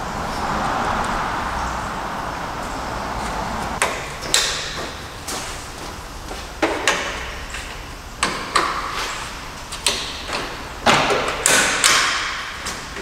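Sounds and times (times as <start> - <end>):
sharp ringing knocks and clanks: 3.8 - 5.5, 9.8 - 13.0.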